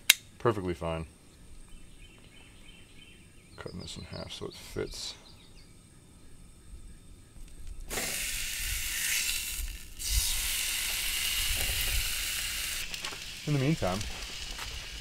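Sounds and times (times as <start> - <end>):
steak sizzling in a skillet: 7.9 - 15.0.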